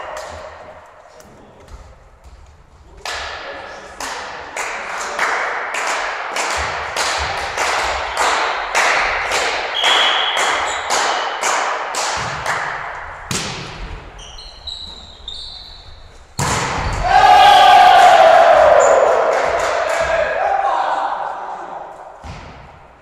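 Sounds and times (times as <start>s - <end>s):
rhythmic clapping in a hall: 3.0s - 13.3s, 17.7s - 20.6s
whistle blast: 9.7s - 10.7s
sports shoes squeaking on court: 14.1s - 16.4s.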